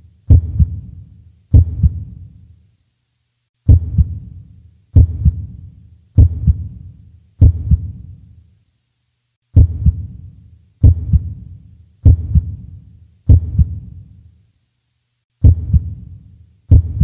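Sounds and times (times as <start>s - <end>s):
heartbeat thumps: 0.3s - 2.2s, 3.7s - 4.4s, 5.0s - 5.6s, 6.2s - 8.0s, 9.6s - 10.2s, 10.8s - 12.7s, 13.3s - 13.9s, 15.4s - 16.1s, 16.7s - 17.0s.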